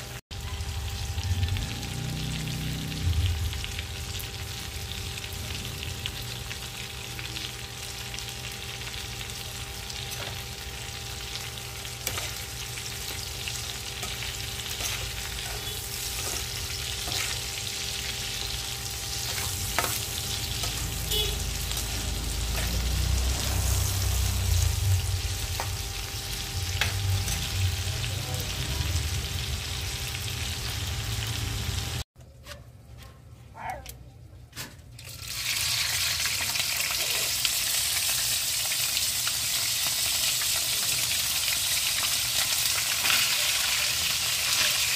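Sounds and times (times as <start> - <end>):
shrimp sizzling in oil: 0.0 - 32.0, 35.0 - 44.9
metal spatula scraping a pan: 13.9 - 17.5, 19.1 - 24.0.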